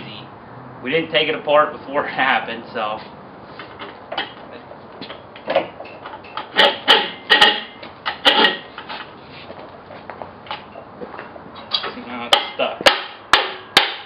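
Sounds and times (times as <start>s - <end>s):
sharp ringing metal knocks: 5.0s - 8.7s, 12.3s - 14.0s
metal parts clanking and rattling: 5.0s - 9.0s.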